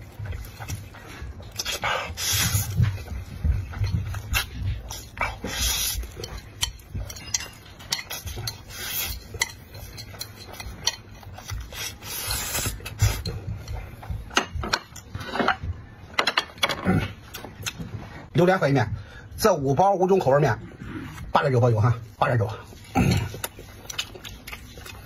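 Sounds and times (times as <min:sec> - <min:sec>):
utensils clinking against a dish: 0:01.4 - 0:16.9.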